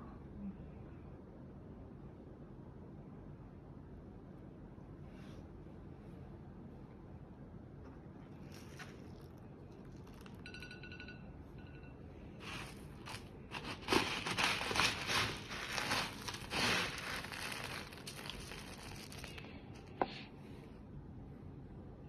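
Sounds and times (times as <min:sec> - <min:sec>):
scoop raking through cat litter: 0:12.4 - 0:19.4.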